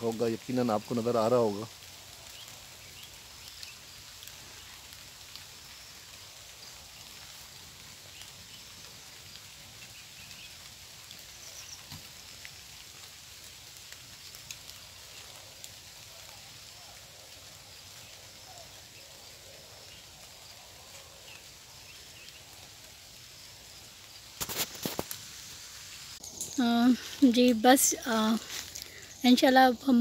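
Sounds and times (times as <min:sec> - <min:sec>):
soft hiss: 0:00.0 - 0:30.0
faint bird chirps: 0:11.2 - 0:12.0.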